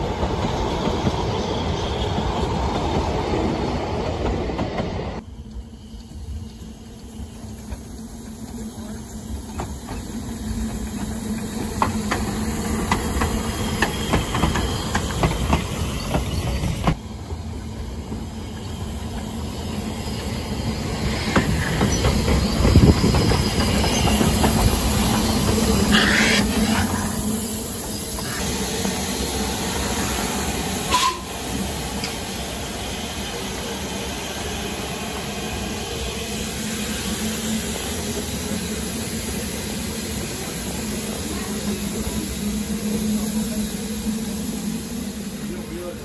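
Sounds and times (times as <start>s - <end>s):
wheels rumbling on rails: 0.0s - 30.2s
steam hissing: 5.2s - 46.0s.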